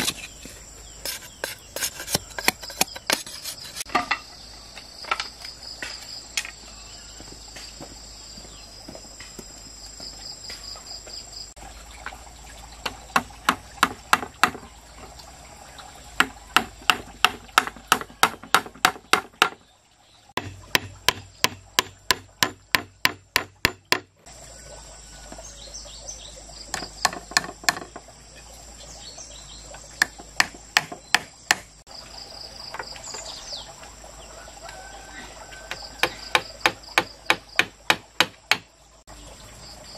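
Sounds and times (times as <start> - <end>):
insects chirring: 0.0 - 39.9
hand tool knocking on bamboo: 1.1 - 4.2, 12.8 - 14.7, 16.2 - 19.6, 20.4 - 24.1, 26.7 - 28.0, 30.0 - 31.7, 35.7 - 38.7.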